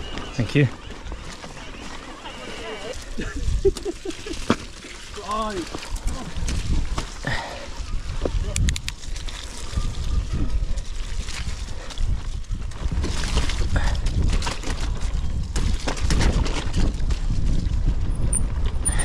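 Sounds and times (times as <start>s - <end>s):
bike rattling over bumps: 0.0s - 19.0s
bike tyres through mud: 0.0s - 19.0s
wind buffeting microphone: 5.2s - 19.0s.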